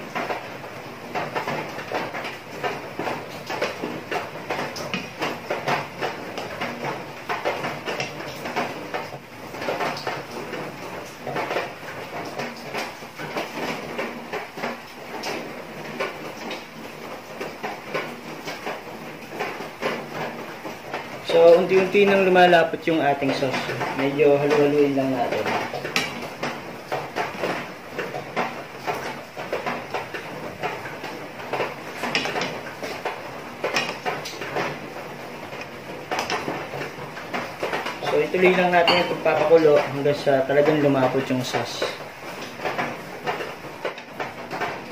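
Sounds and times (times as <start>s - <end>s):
sauce boiling and bubbling in pan: 0.0s - 44.9s.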